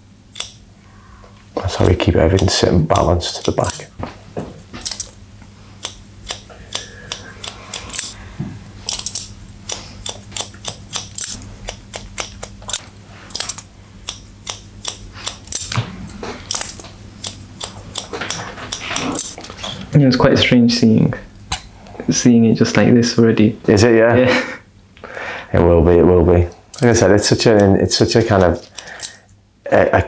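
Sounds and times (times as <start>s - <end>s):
scissors snipping hair: 0.3s - 0.6s, 1.6s - 3.9s, 5.8s - 8.2s, 8.9s - 15.8s, 16.5s - 19.4s.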